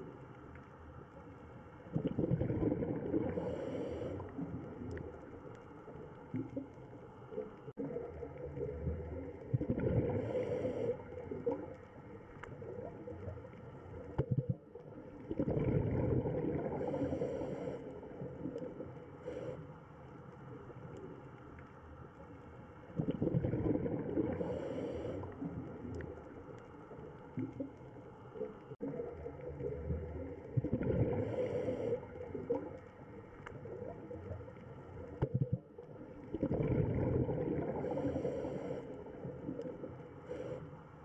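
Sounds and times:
underwater low rumble: 0.0 - 41.0
diver breathing bubbles: 1.9 - 5.4, 7.4 - 11.8, 14.0 - 19.8, 23.0 - 26.3, 28.8 - 32.9, 35.0 - 41.0.

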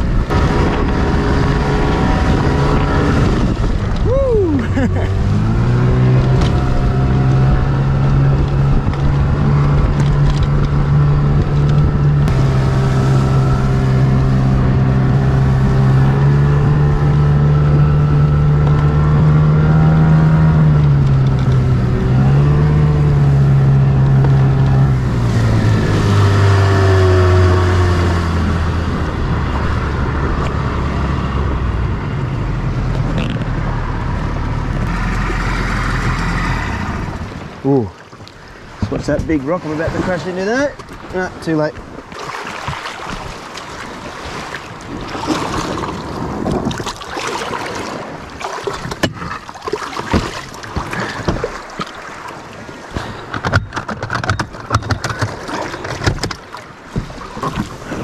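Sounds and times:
small boat motor running: 0.0 - 39.7, 40.8 - 58.0
water noise: 0.0 - 58.0
wind: 0.0 - 58.0.

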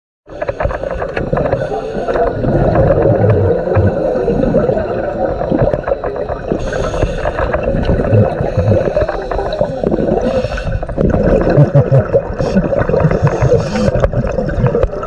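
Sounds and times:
underwater crackling and rushing: 0.3 - 15.0.

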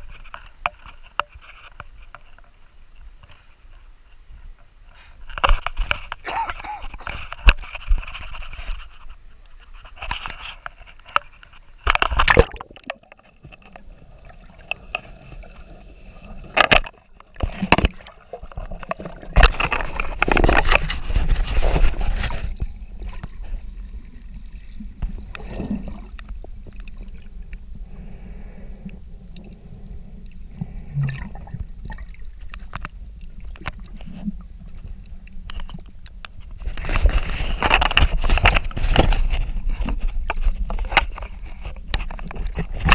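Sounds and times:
water sloshing and gurgling: 4.9 - 42.9
muffled underwater rumble: 12.2 - 42.9
camera knocks and scrapes: 16.6 - 23.4.

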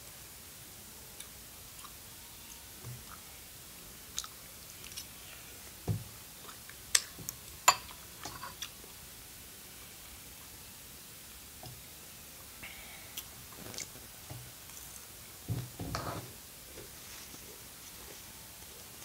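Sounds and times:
chewing noodles: 4.1 - 5.3.

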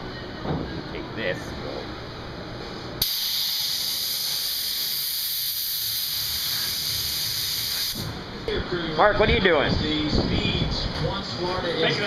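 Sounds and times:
high-pitched hiss: 3.0 - 8.0.

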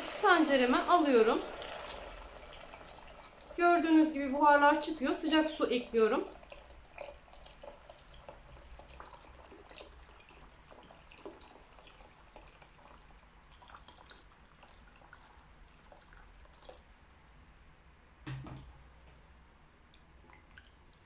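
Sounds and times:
hot water pouring into a pot: 0.0 - 16.8.

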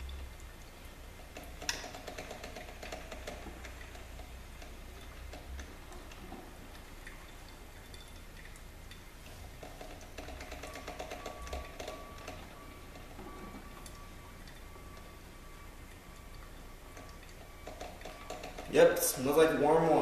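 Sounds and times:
crackling clicks and pops: 1.3 - 7.2, 16.3 - 18.8
coffee maker sputtering: 1.3 - 8.6, 9.2 - 20.0.

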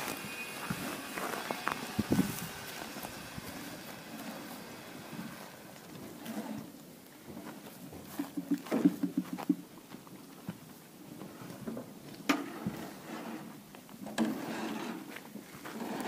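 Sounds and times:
knocks and clatters at a trough: 8.0 - 9.7.

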